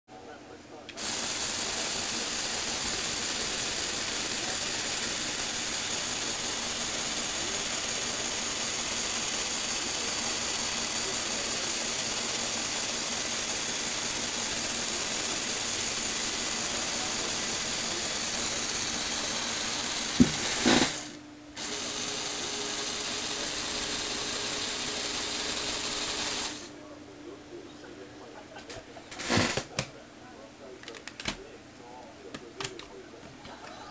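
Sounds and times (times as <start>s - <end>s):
electric motor and gears running: 1.0s - 26.8s.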